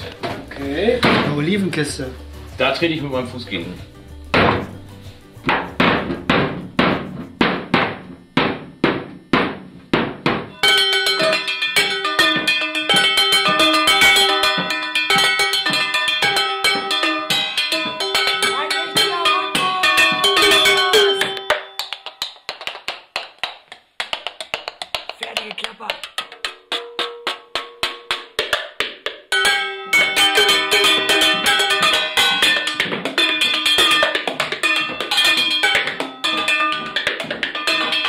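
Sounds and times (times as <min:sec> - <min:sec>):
wooden crate kick drum: 0:00.0 - 0:01.9, 0:02.5 - 0:38.0
pitched tune: 0:10.5 - 0:22.0, 0:25.2 - 0:28.1
spoons striking pots and bowls: 0:10.5 - 0:23.0, 0:24.3 - 0:38.0.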